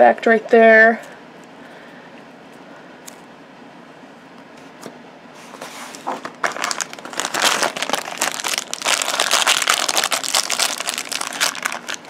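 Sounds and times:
packaging wrapper crinkling: 0:06.0 - 0:12.0.

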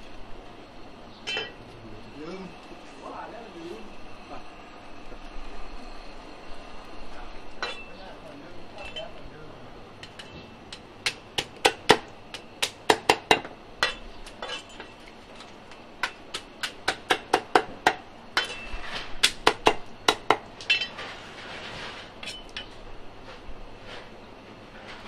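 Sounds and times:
scraping: 0:20.7 - 0:24.1.

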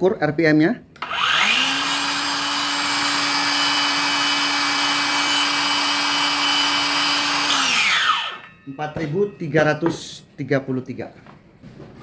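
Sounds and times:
circular saw whining: 0:01.0 - 0:09.8.

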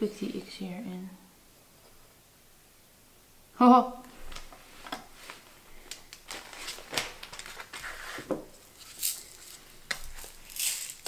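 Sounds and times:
plastic piping bag crinkling: 0:05.2 - 0:11.0.

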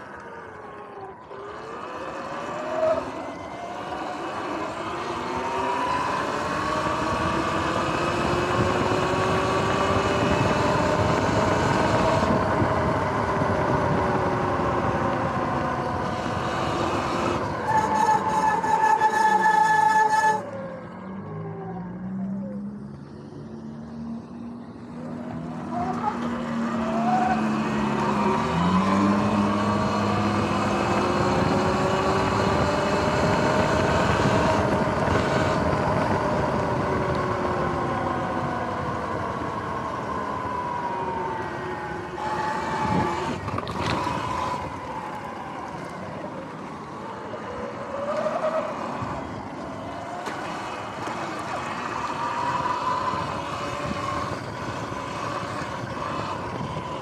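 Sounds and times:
wind: 0:00.0 - 0:57.0
electric motor whining: 0:24.8 - 0:57.0.

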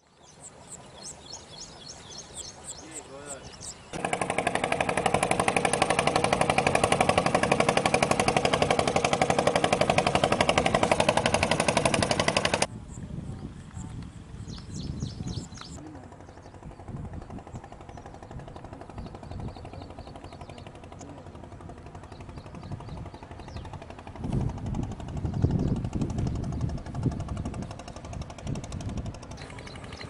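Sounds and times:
wind buffeting microphone: 0:01.2 - 0:30.0
fast even rattle: 0:04.0 - 0:12.7.

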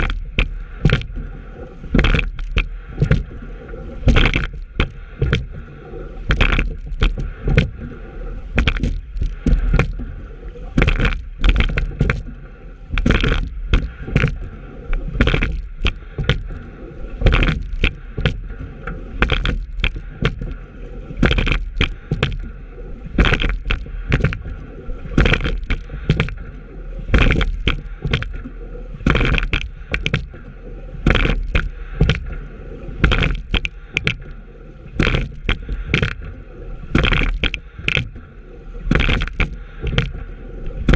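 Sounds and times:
oars knocking and splashing: 0:00.0 - 0:40.9
water rushing along hull: 0:00.0 - 0:40.9.

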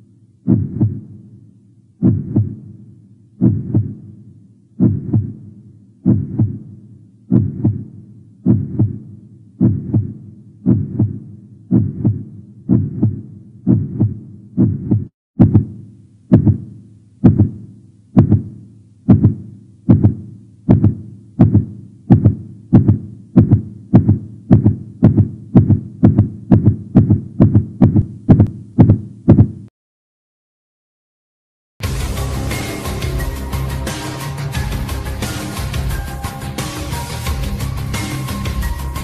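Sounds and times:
heartbeat thumps: 0:00.4 - 0:01.3, 0:02.0 - 0:04.2, 0:04.8 - 0:29.7.

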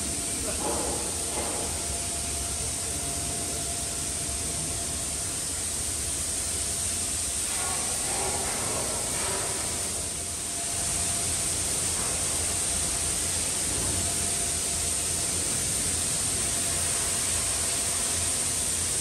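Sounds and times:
shipyard background hiss: 0:00.0 - 0:19.0.

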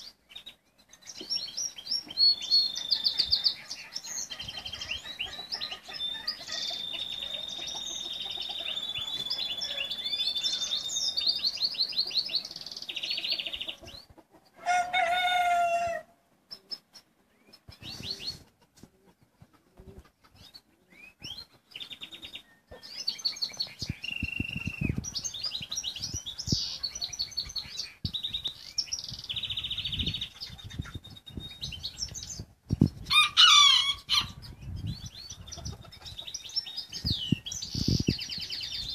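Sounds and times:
songbirds chirping and trilling: 0:00.0 - 0:38.9
rooster crowing: 0:14.6 - 0:16.1, 0:33.1 - 0:34.4.

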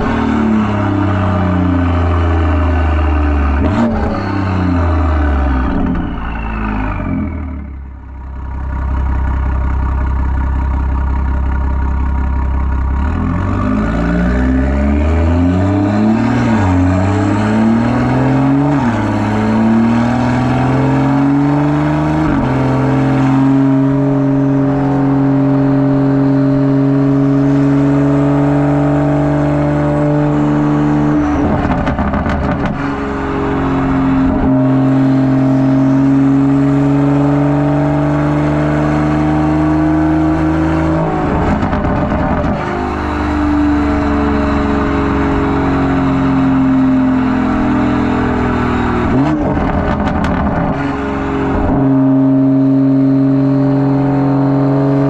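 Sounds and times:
car exhaust drone with upshifts: 0:00.0 - 0:55.0
exhaust rattling crackle: 0:49.4 - 0:50.8.

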